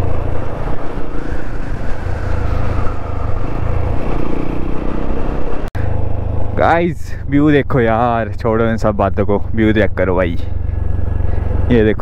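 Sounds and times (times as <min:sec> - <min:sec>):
wind rumble on microphone: 0:00.0 - 0:05.7
motorcycle engine: 0:00.0 - 0:12.0.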